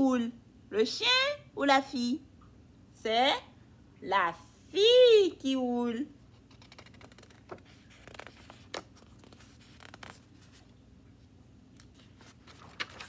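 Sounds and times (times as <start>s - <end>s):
low room hum: 0.0s - 13.0s
paper pages rustling: 6.4s - 13.0s.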